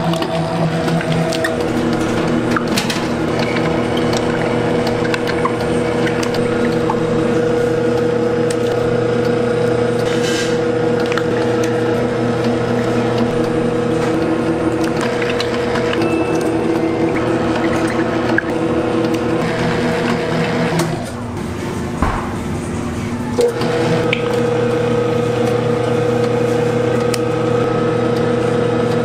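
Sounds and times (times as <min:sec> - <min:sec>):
kitchen machine motor hum: 0:00.0 - 0:29.0.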